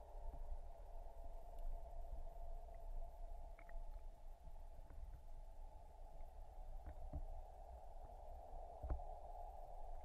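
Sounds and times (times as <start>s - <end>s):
muffled underwater rumble and hum: 0.0s - 10.0s
faint clicks: 3.5s - 4.1s.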